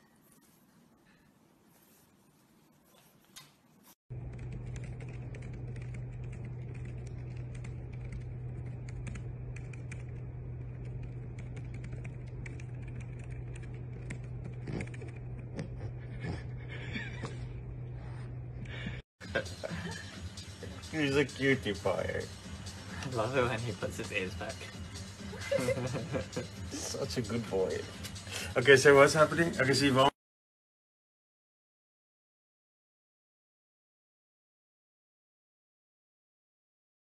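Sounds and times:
steady low hum: 4.1s - 28.8s
laptop keyboard typing: 4.2s - 15.6s.

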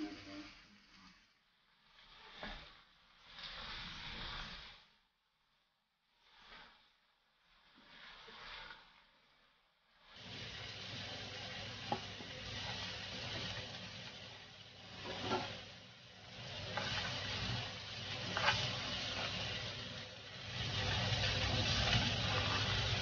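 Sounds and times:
food sizzling in hot oil: 1.8s - 4.8s, 6.2s - 6.8s, 7.5s - 8.9s, 9.9s - 23.0s.

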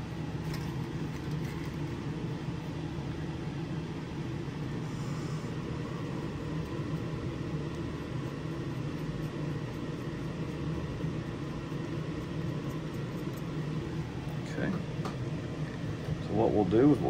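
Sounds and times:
exhaust fan humming: 0.0s - 17.0s.

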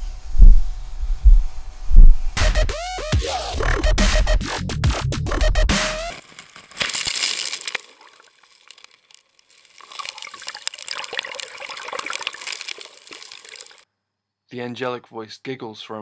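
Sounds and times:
fizzing foamy water rush: 6.2s - 13.8s.

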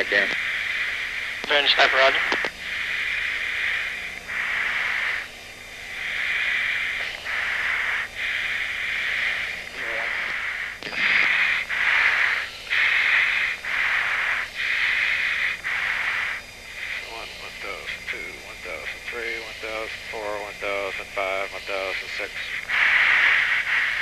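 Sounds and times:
breathing hiss into mask microphone: 0.0s - 24.0s
faint steady hum: 0.0s - 24.0s.

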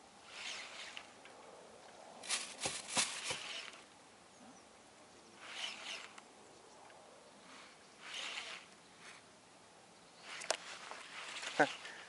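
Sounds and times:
fishing reel whirring: 0.2s - 1.0s, 3.2s - 3.8s, 5.4s - 6.2s, 8.0s - 8.7s, 10.3s - 12.0s.

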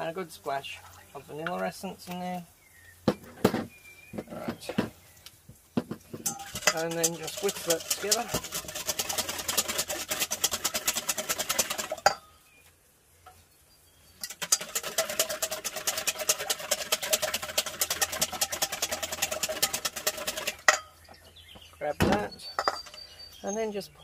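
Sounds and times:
whisk ticking against metal bowl: 6.2s - 12.2s, 14.2s - 20.9s.

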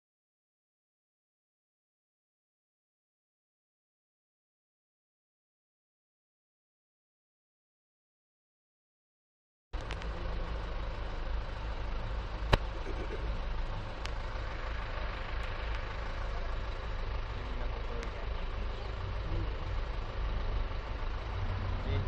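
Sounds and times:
jeep engine rumbling: 9.8s - 22.0s.

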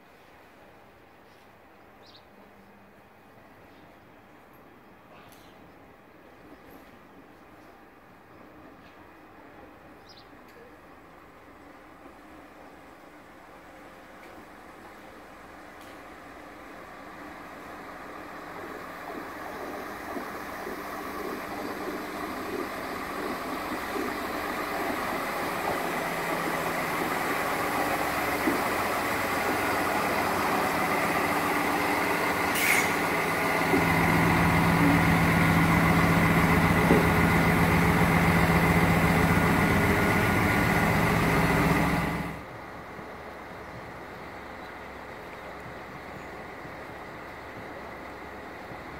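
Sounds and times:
diesel railcar engines humming: 0.0s - 48.9s.

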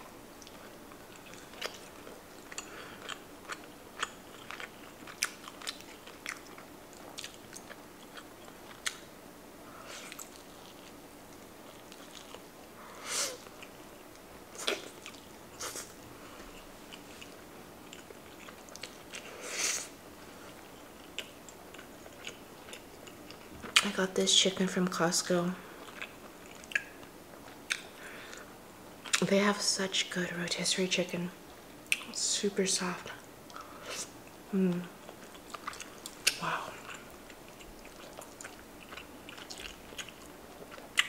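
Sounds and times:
person chewing wet smacks: 0.4s - 9.1s, 13.4s - 19.3s, 20.5s - 24.0s, 25.8s - 29.2s, 35.0s - 41.0s.

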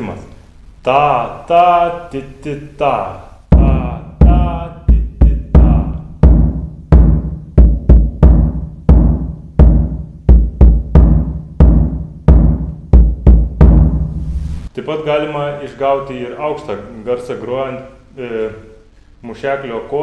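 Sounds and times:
deep drum thuds: 3.5s - 14.7s.

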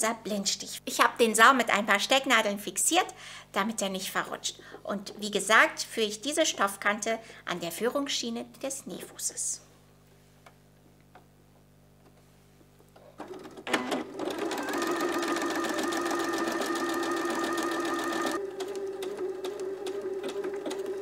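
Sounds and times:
sewing machine running: 13.2s - 21.0s.

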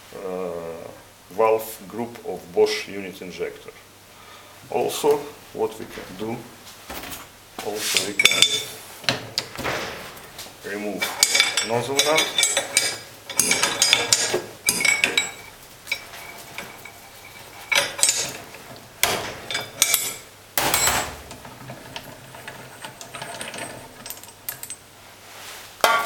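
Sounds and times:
metal parts clinking and knocking: 7.9s - 24.9s.

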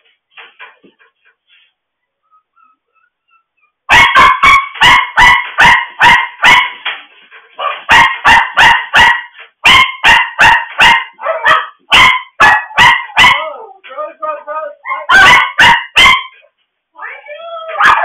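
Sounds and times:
dog barking sharply: 3.9s - 6.9s, 7.6s - 13.4s, 14.9s - 16.4s, 17.8s - 18.0s.

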